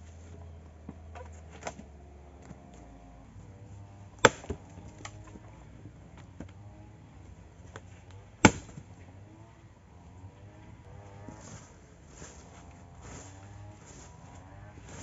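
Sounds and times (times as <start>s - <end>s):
axe chopping wood: 4.2s - 5.4s, 7.7s - 9.0s.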